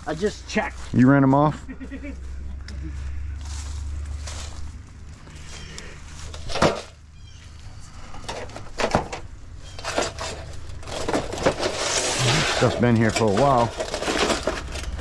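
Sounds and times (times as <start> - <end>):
scrap metal clanking: 8.1 - 15.0.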